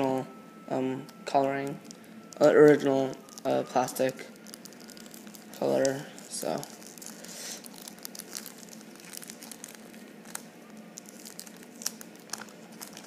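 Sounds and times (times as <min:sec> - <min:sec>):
plastic wrapping crinkling and tearing: 0:01.2 - 0:13.0.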